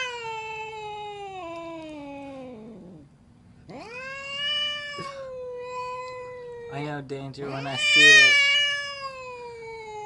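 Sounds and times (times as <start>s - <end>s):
angry cat yowling: 0.0s - 3.0s, 3.7s - 10.0s.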